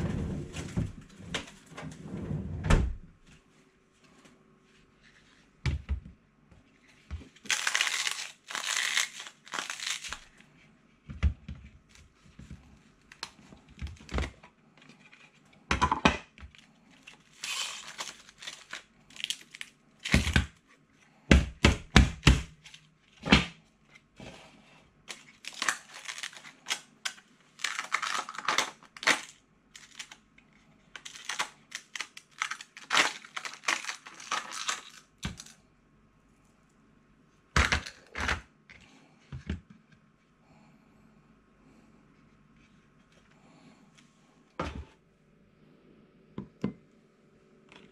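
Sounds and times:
ice cube tray crackling: 0:07.4 - 0:10.4, 0:17.0 - 0:20.4, 0:25.1 - 0:30.2, 0:31.0 - 0:35.6.

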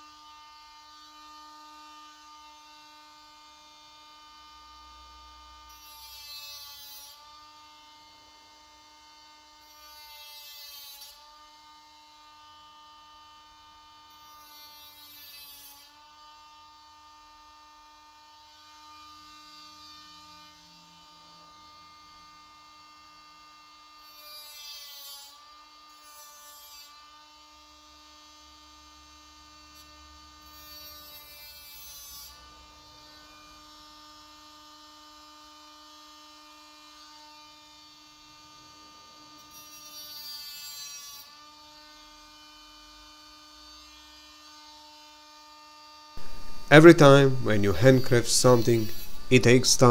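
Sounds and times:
power sander whining: 0:46.2 - 0:49.9.

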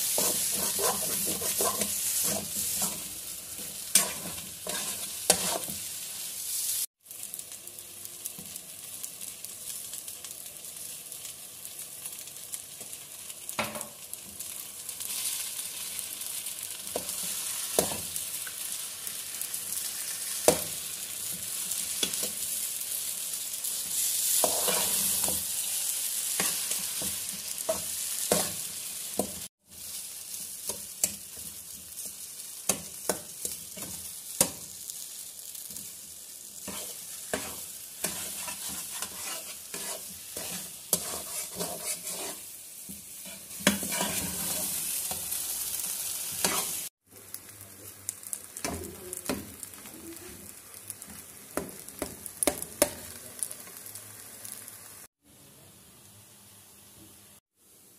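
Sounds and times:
metal spatula scraping a pan: 0:00.0 - 0:05.9, 0:23.9 - 0:25.6, 0:36.6 - 0:45.2, 0:46.3 - 0:46.9
food sizzling in a pan: 0:00.0 - 0:57.9.

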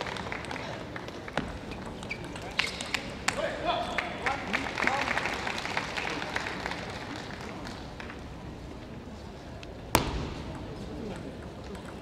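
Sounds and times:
people clapping: 0:00.0 - 0:08.3
sharp knock: 0:10.0 - 0:10.5.

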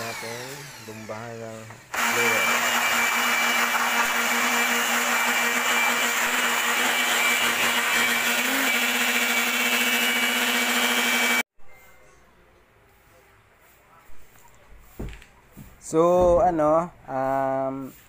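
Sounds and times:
electric blower whining: 0:00.0 - 0:11.5.

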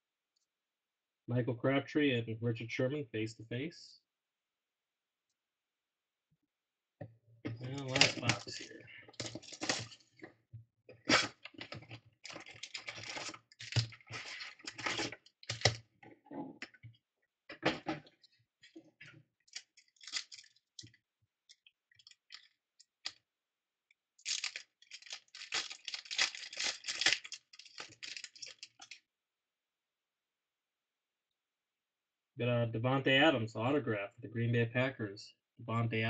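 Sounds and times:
cards shuffled by hand: 0:07.6 - 0:10.0, 0:24.2 - 0:29.0
foil packs crinkling and tearing: 0:07.7 - 0:10.1, 0:11.1 - 0:15.8, 0:19.5 - 0:20.6, 0:24.2 - 0:29.0.

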